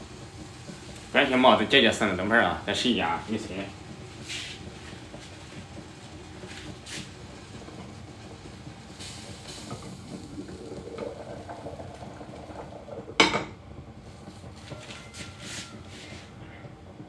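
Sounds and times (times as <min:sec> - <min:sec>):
pot lid clanking: 0:13.2 - 0:13.6.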